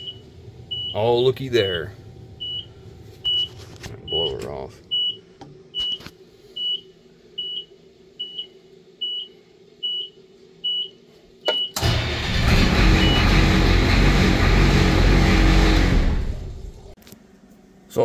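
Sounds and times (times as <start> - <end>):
diesel engine cranking: 11.8 - 17.0.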